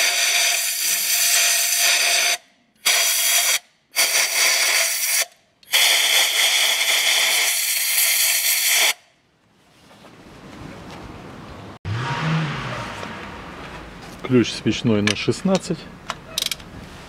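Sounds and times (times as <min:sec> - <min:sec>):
air blow gun hissing: 0:00.0 - 0:09.0.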